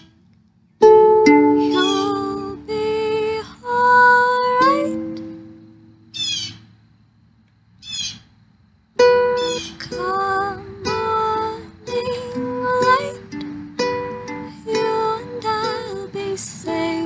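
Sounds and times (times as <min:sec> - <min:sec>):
pop song high melody: 0:01.5 - 0:05.4, 0:09.4 - 0:17.0.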